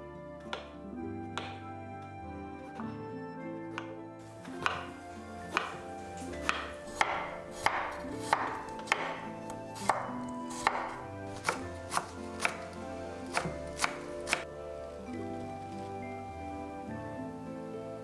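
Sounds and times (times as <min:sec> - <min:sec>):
knife chopping on wooden board: 0:01.3 - 0:01.6, 0:03.7 - 0:14.5.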